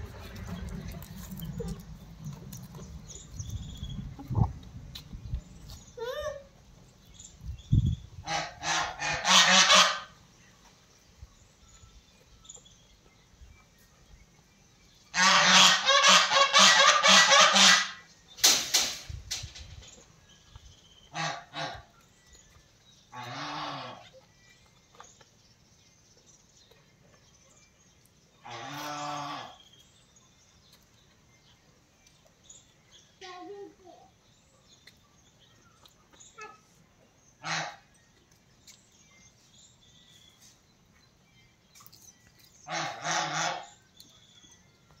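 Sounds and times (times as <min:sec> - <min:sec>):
farm animal calls: 0:08.2 - 0:10.2, 0:15.1 - 0:18.1, 0:21.0 - 0:25.2, 0:28.4 - 0:29.8, 0:35.8 - 0:38.0, 0:41.8 - 0:44.2.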